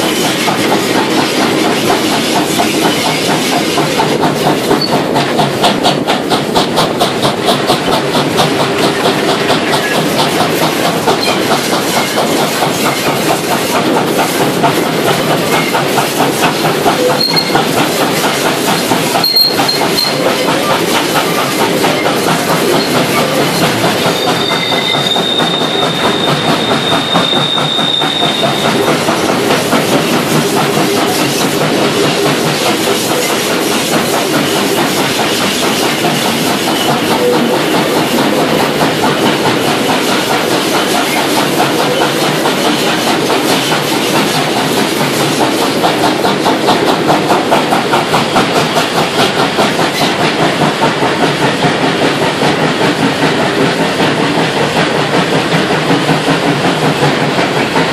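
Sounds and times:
steam train exhaust beats: 0.0s - 57.9s
wheel clatter on rails: 0.0s - 57.9s
high-pitched wheel squeal: 17.0s - 17.6s, 19.2s - 20.4s, 21.9s - 28.8s.

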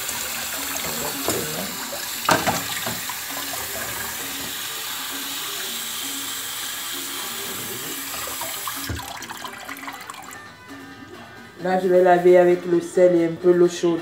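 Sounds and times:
tap water splashing in sink: 0.0s - 4.7s, 8.1s - 10.3s.

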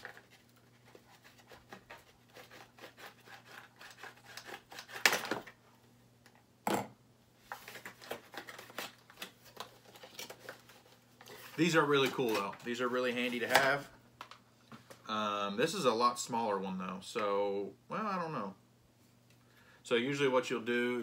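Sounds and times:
knife scraping packaging: 0.0s - 5.5s.

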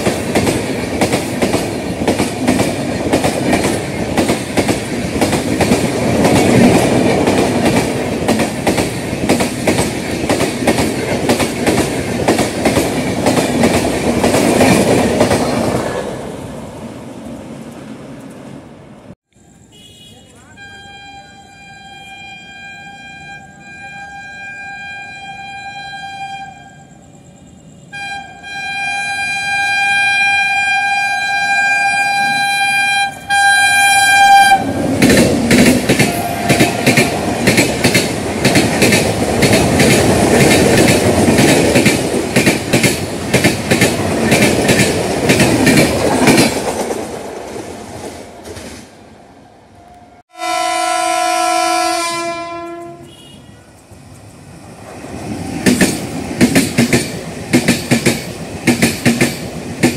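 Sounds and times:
train wheels clickety-clack: 0.0s - 16.2s, 34.8s - 48.9s, 53.7s - 59.9s
train horn: 19.7s - 27.0s, 27.8s - 34.8s, 35.9s - 37.4s, 49.9s - 53.8s
low-pitched train horn: 20.2s - 27.0s, 27.8s - 34.8s, 35.9s - 37.4s, 49.8s - 53.8s.

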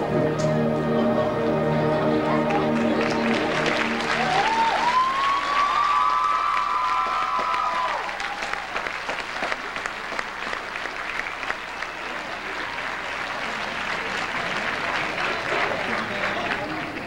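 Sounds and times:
marching band chord: 0.0s - 5.2s
crowd applauding: 1.9s - 17.0s.

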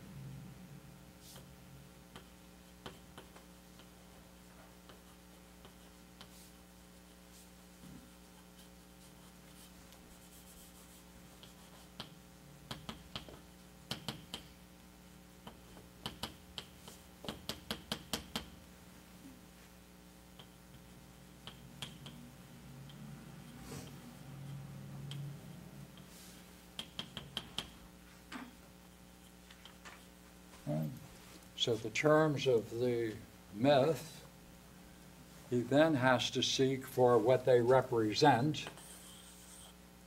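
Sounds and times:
steady low hum: 0.0s - 40.0s
taps and clicks on a board: 11.4s - 14.5s, 15.4s - 18.6s, 26.8s - 27.8s.

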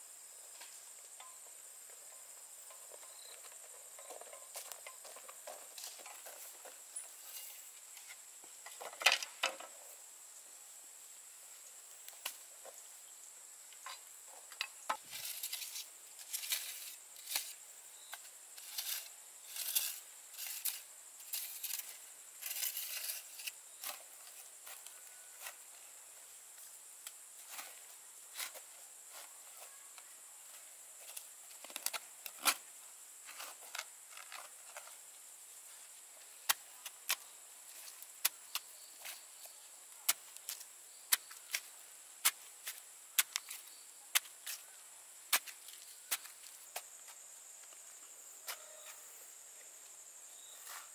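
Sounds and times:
steady high hiss: 0.0s - 50.9s
shovel digging into soil: 18.6s - 24.0s, 45.3s - 46.3s.

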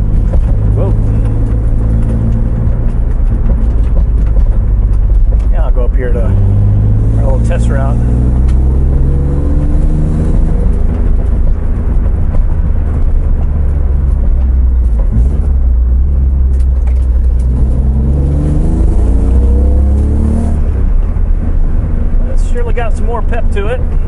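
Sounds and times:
car engine accelerating: 0.0s - 24.0s.

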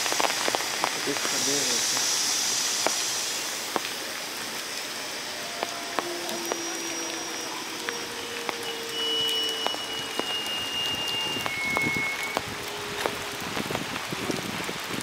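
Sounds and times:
rain falling: 0.0s - 15.0s
faint thin high tone: 5.0s - 13.2s.

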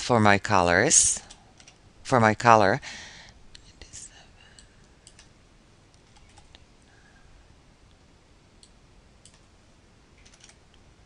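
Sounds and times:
low hiss: 0.0s - 11.0s
keyboard and mouse clicks: 4.6s - 5.3s, 5.9s - 6.6s, 8.6s - 9.5s, 10.2s - 10.8s.

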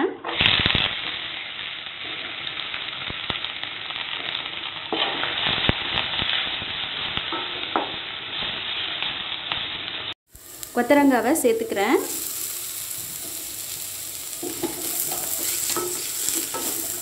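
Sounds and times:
food sizzling in hot oil: 0.2s - 17.0s
wooden spatula scraping a pan: 14.4s - 17.0s.

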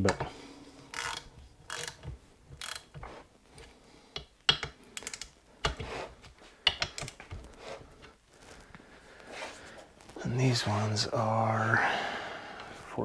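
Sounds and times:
torque wrench ratchet clicking: 0.9s - 2.0s, 2.6s - 2.9s, 5.0s - 5.3s.

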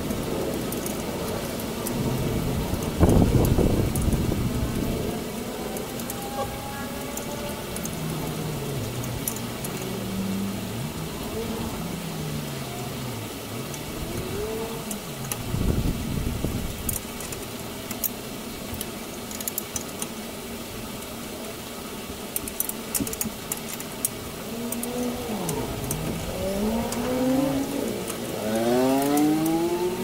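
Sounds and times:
engine revving: 24.5s - 30.0s.

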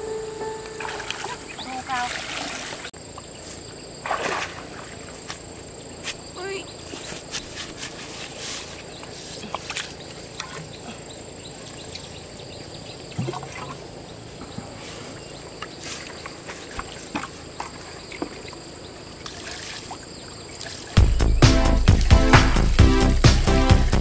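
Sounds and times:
high insect drone: 0.0s - 13.1s.

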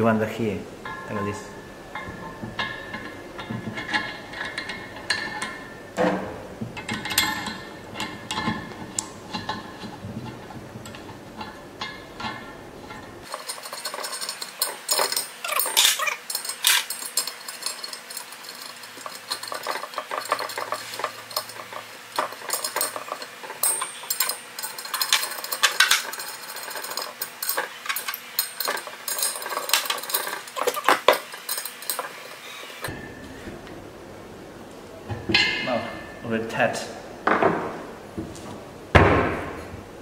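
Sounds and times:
metallic clicks and clinks: 10.8s - 32.9s.

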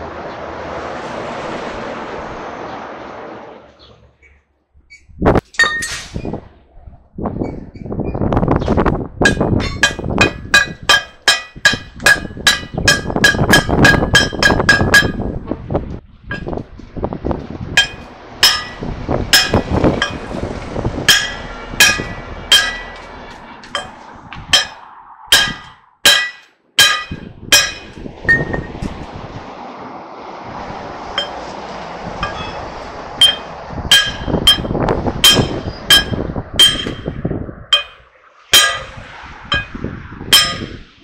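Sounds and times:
hammer striking steel: 5.6s - 6.2s, 9.2s - 15.3s, 16.3s - 16.6s, 17.8s - 20.4s, 21.1s - 28.9s, 31.2s - 31.5s, 32.2s - 40.8s.

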